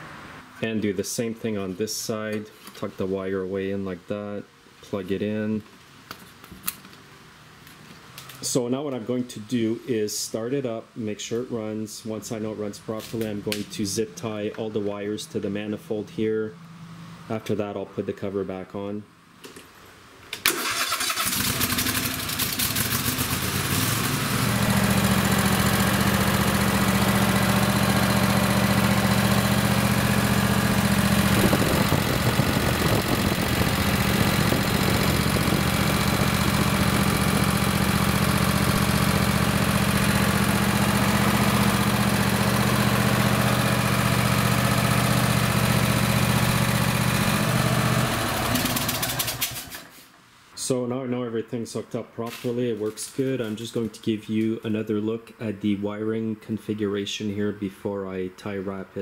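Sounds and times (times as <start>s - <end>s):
lawn tractor engine running: 20.5s - 49.9s.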